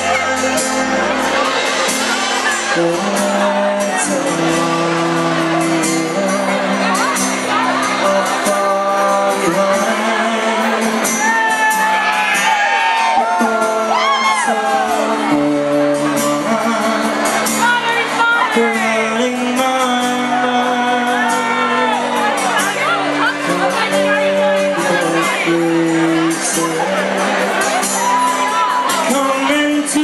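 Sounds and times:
folk-rock band playing: 0.0s - 30.0s.

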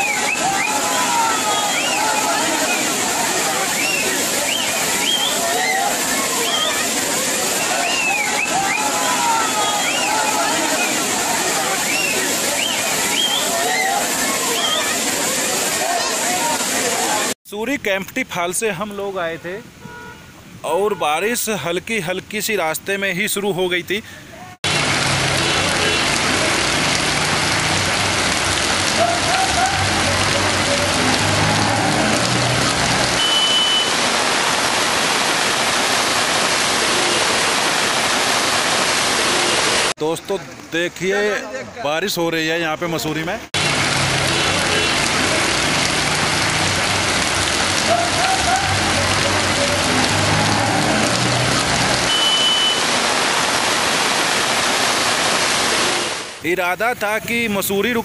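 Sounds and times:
rain on a paved street: 0.0s - 58.0s
brief high tone: 52.1s - 52.8s.

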